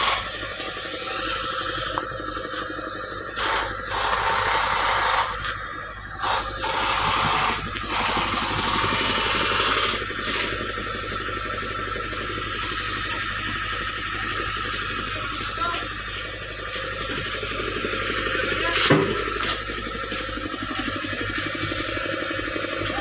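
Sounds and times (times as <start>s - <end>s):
air tool rattling hiss: 0.0s - 0.6s, 1.6s - 13.7s, 19.2s - 22.4s
low engine hum: 0.0s - 23.0s.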